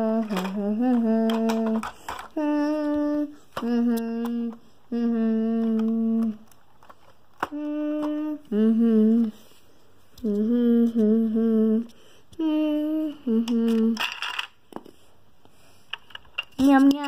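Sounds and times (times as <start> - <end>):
child humming: 0.0 - 6.5, 7.4 - 9.5, 10.2 - 14.1.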